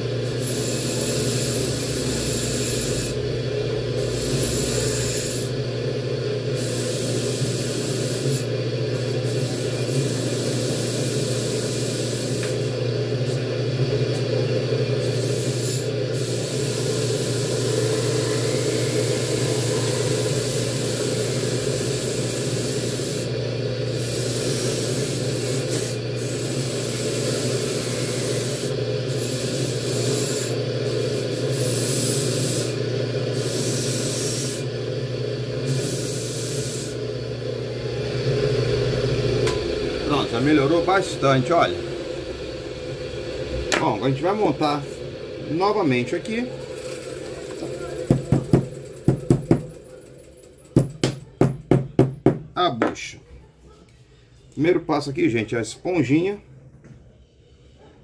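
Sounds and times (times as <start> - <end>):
steady low hum: 33.4 - 46.6.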